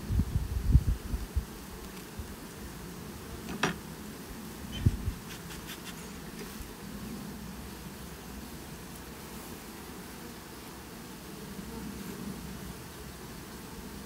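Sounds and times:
bee smoker puffing: 0:00.0 - 0:14.0
bees buzzing: 0:00.1 - 0:14.0
dull thump: 0:03.5 - 0:03.8.

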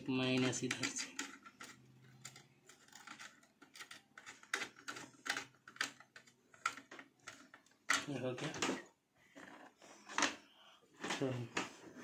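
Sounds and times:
screwdriver clicking and scraping: 0:00.2 - 0:07.7.

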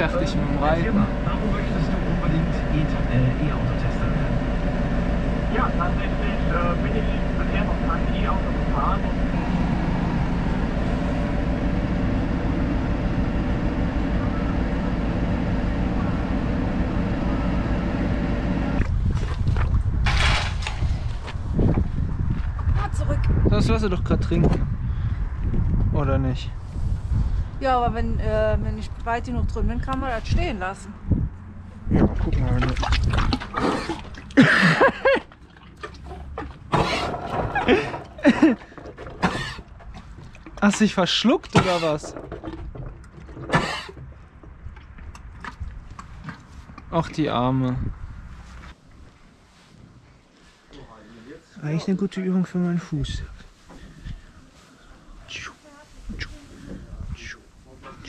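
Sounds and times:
tractor diesel engine running: 0:00.0 - 0:19.2, 0:27.6 - 0:44.3
horse coughing: 0:36.7 - 0:39.7, 0:43.4 - 0:44.0.

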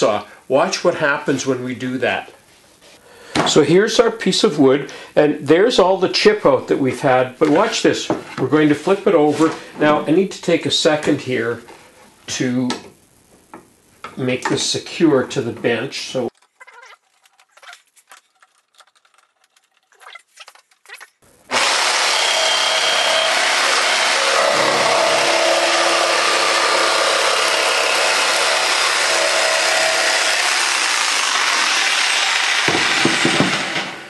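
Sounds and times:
electric jigsaw cutting plywood: 0:21.5 - 0:34.0.

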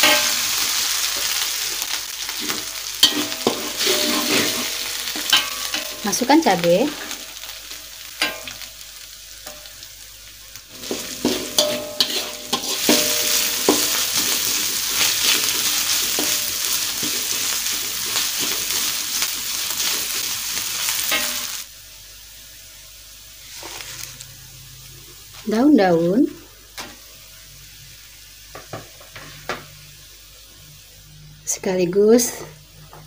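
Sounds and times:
chillies sizzling in wok: 0:00.0 - 0:33.0
metal spatula scraping pan: 0:02.4 - 0:06.3, 0:10.8 - 0:20.0.

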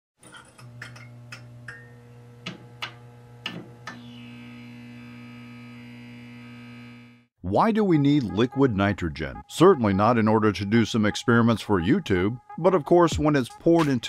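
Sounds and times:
neon sign buzzing hum: 0:00.7 - 0:07.3.

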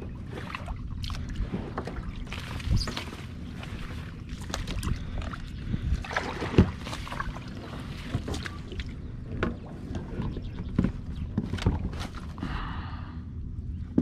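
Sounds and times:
paddle splashes and swishes: 0:00.0 - 0:12.4
paddle knocks: 0:06.1 - 0:07.3.

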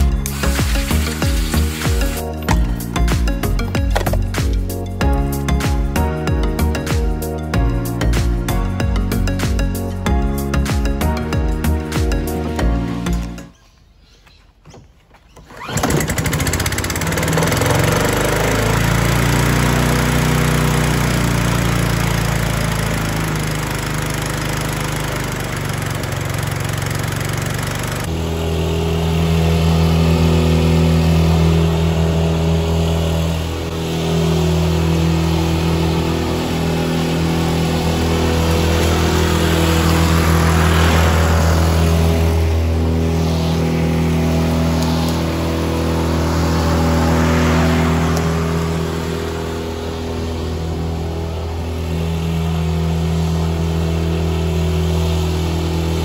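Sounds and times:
lawnmower engine running: 0:00.0 - 0:13.4, 0:15.3 - 0:56.0.

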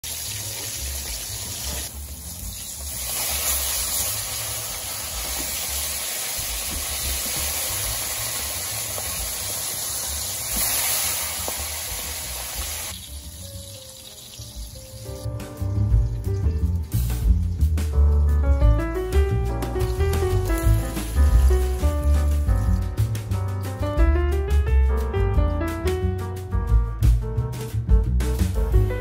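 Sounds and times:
fish sizzling in frying pan: 0:00.0 - 0:15.3, 0:19.8 - 0:22.7.

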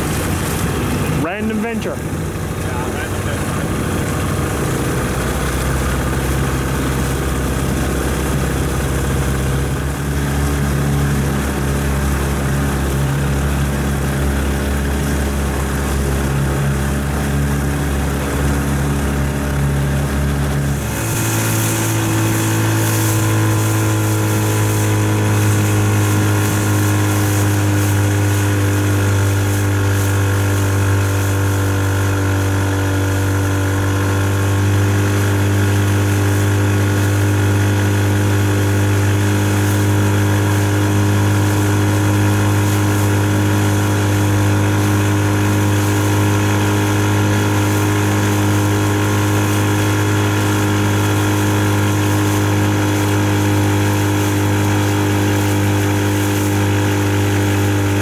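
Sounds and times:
boat engine running: 0:00.0 - 0:58.0
hiss of wind or water: 0:03.6 - 0:58.0.

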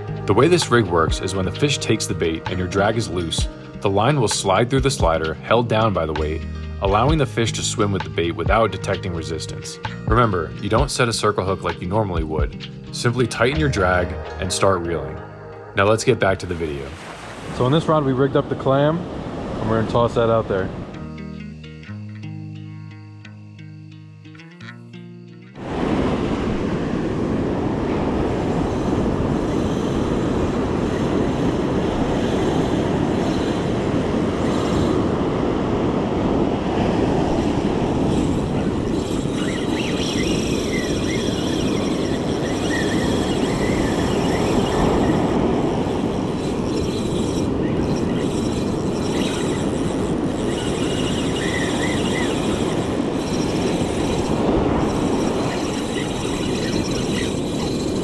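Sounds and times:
ocean surf breaking: 0:13.0 - 0:21.0, 0:25.6 - 0:58.0
wind on microphone: 0:25.6 - 0:58.0.

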